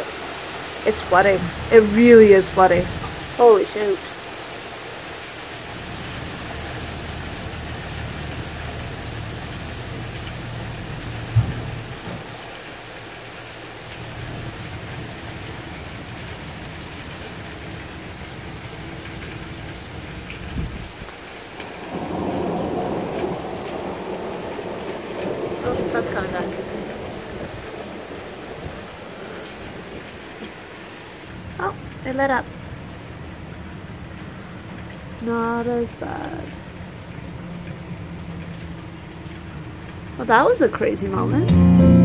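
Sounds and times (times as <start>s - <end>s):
torrential rain: 0.0s - 42.0s
low rumble of thunder: 5.7s - 12.9s, 19.9s - 30.7s.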